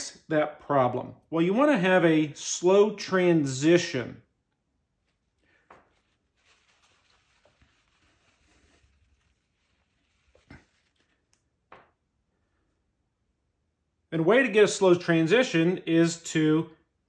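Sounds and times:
paper towel wiping whiteboard: 5.0s - 11.4s.

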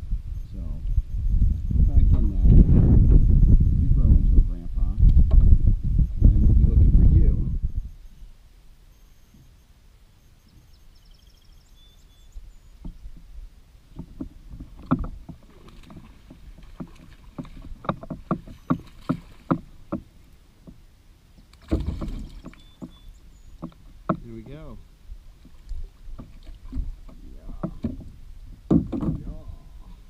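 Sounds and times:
knocks and taps on plastic kayak: 13.9s - 20.8s, 21.6s - 23.0s, 23.6s - 24.6s, 25.4s - 29.4s.

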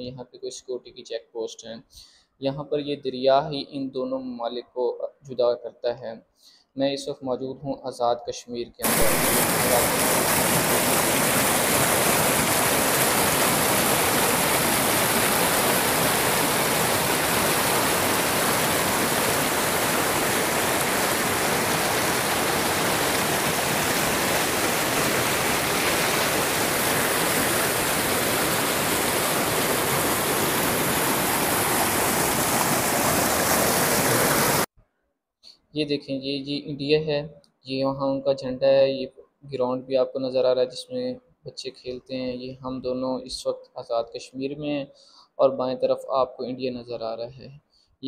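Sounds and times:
river water rushing over rocks: 8.8s - 34.7s.

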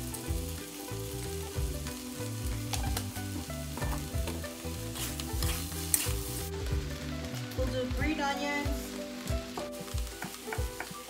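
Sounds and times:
food sizzling in a wok: 0.0s - 11.0s
metal spatula scraping pan: 4.9s - 6.2s.

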